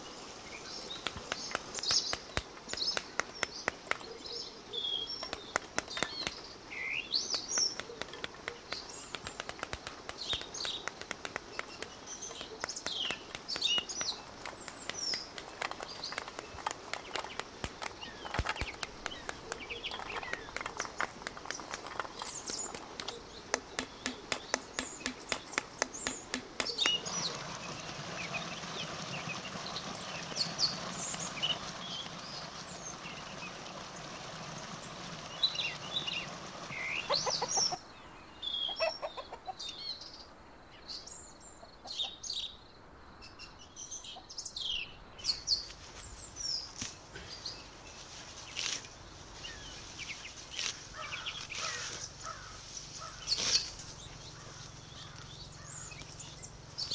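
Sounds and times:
small birds chirping: 0.0s - 56.9s
rapid sharp clicks: 0.9s - 4.1s, 5.1s - 6.5s, 7.1s - 28.3s.

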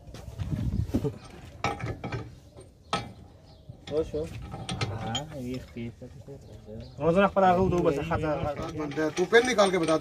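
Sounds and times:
metal clinks and clanks: 8.4s - 10.0s.

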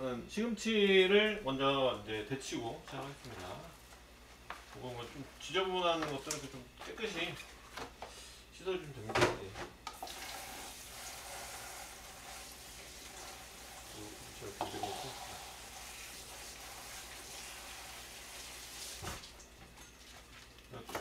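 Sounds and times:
tap water running into sink: 9.9s - 19.4s.

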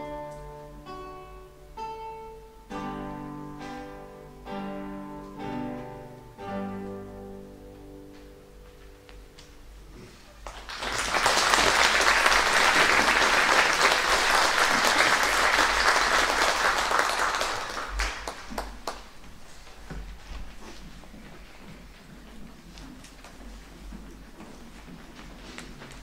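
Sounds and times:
audience applauding: 10.4s - 19.2s.

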